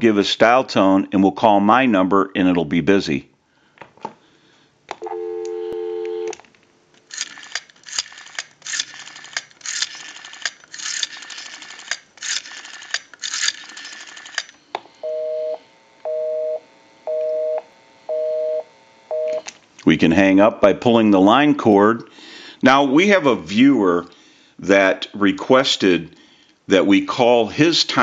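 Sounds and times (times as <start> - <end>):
telephone dial tone: 5.0 - 6.4, 7.1 - 19.5
rotary dial clicking: 7.0 - 14.6
busy signal beeps: 15.0 - 19.4.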